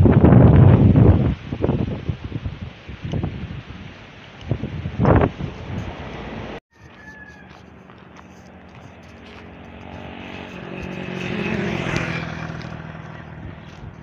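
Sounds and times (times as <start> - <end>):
vehicle engine hum passing: 5.0 - 14.0.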